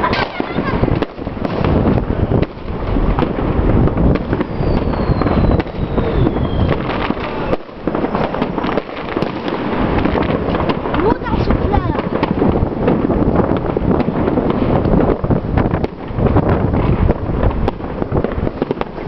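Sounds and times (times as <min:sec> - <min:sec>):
fireworks crackling and banging: 0:00.0 - 0:19.0
falling firework whistle: 0:04.1 - 0:09.4.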